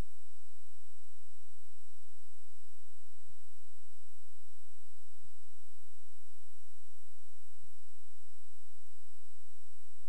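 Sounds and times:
high whine: 0.0 - 0.6
recording hiss: 0.0 - 10.0.

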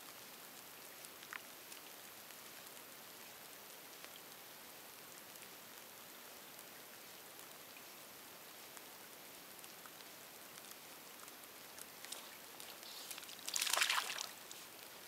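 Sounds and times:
light rain pattering: 0.0 - 15.0
water drips: 9.5 - 15.0
fishing line swishing off water: 12.0 - 14.7.

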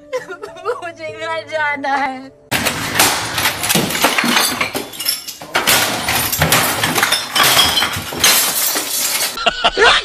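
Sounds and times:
clinking debris: 2.5 - 9.4
things smashing and breaking: 2.5 - 9.4.

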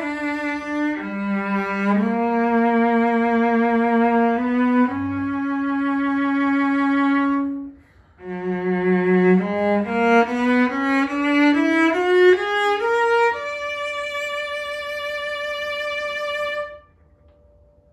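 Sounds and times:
bowed cello notes: 0.0 - 17.4.

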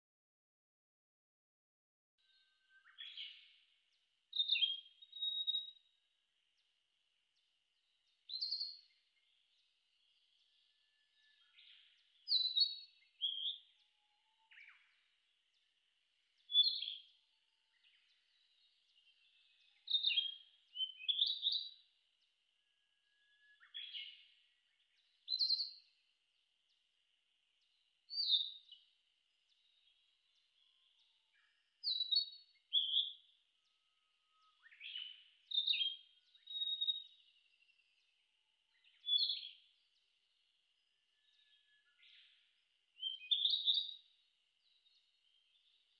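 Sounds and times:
flycatcher singing: 4.3 - 6.0, 14.4 - 22.0, 27.5 - 33.4, 34.3 - 40.5.

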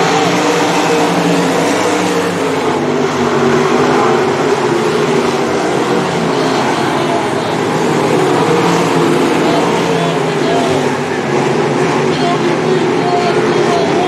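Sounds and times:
racing car engines droning: 0.0 - 14.0.

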